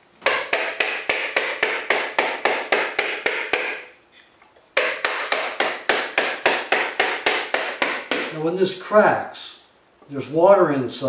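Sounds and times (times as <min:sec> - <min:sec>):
hammer tapping coconut shell: 0:00.2 - 0:03.9, 0:04.8 - 0:08.4.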